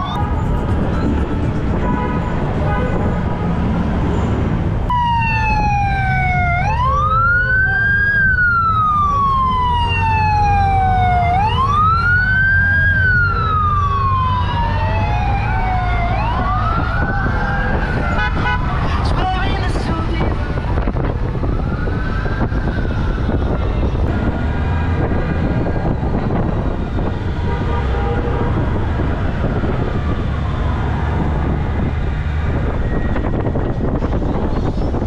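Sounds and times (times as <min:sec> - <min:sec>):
siren wailing: 0:00.0 - 0:00.5, 0:04.9 - 0:18.9, 0:20.2 - 0:27.3, 0:28.5 - 0:33.7
motorcycle engines rumbling: 0:00.0 - 0:35.0.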